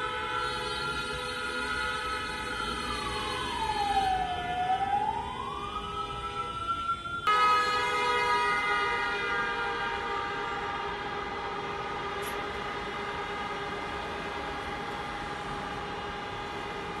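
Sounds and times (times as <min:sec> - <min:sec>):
many car horns honking: 0:00.0 - 0:03.5, 0:07.2 - 0:17.0.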